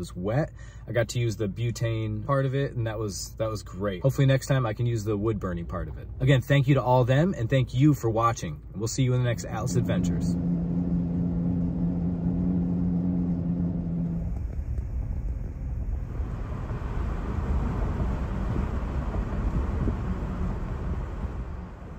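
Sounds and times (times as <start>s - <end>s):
vehicle road noise hum: 0.0s - 21.9s
rushing wind noise: 14.2s - 21.9s.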